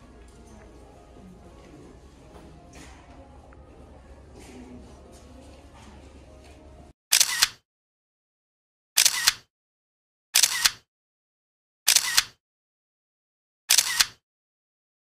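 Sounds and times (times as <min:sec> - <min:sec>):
camera shutter double clicks: 0:07.1 - 0:07.6, 0:09.0 - 0:09.5, 0:10.4 - 0:10.9, 0:11.9 - 0:12.4, 0:13.7 - 0:14.2.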